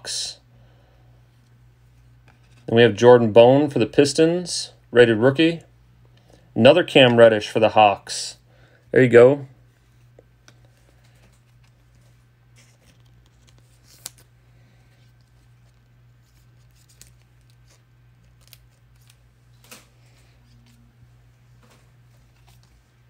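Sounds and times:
low steady hum: 0.0s - 23.0s
trading cards being handled: 9.7s - 23.0s.

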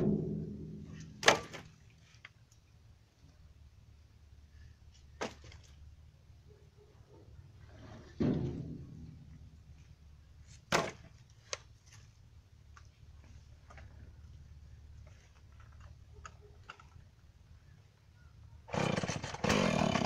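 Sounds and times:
heavy wooden thud: 0.0s - 1.5s
wooden branches knocking: 0.0s - 2.4s
low steady hum: 0.0s - 18.7s.

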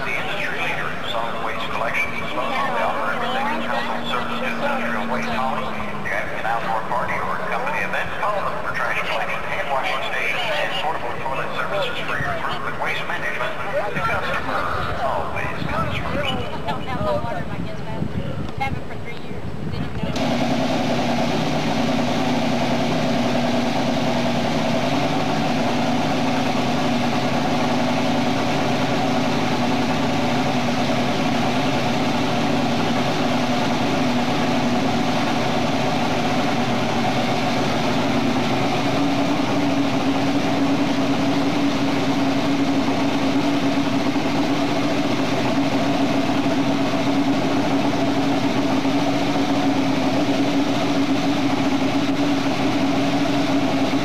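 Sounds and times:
boat engine idling: 0.0s - 54.0s.

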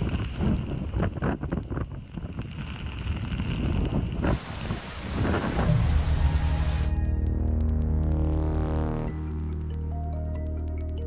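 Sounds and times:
wind gusting on microphone: 0.0s - 7.6s
heavy rain: 0.0s - 9.7s.

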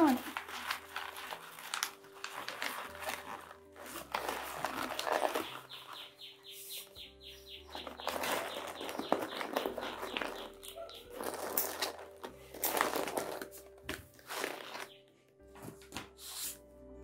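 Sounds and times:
paper crinkling and rustling: 0.0s - 6.2s, 7.7s - 15.0s.

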